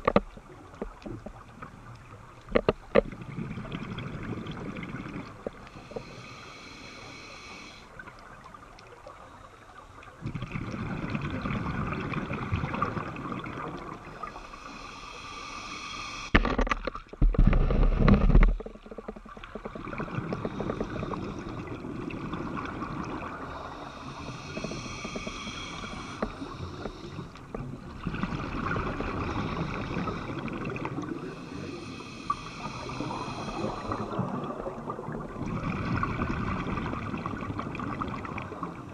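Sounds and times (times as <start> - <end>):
exhaled bubbles gushing: 3.1 - 5.6, 10.2 - 14.4, 19.2 - 23.9, 27.6 - 31.5, 32.6 - 38.9
regulator hissing inhale: 5.6 - 8.0, 14.2 - 16.4, 20.4 - 21.8, 23.4 - 27.5, 29.1 - 34.3.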